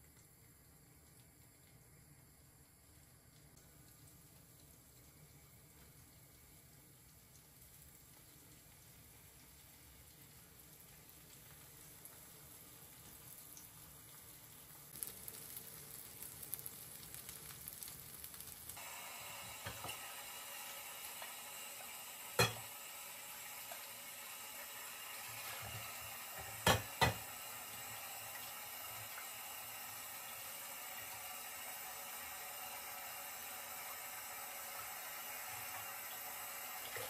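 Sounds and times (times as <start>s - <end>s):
food sizzling in oil: 3.4s - 37.0s
tap running into sink: 19.4s - 20.1s, 22.3s - 22.7s, 25.2s - 29.2s
bowl knocking on dishes: 22.4s - 22.6s, 26.6s - 27.2s.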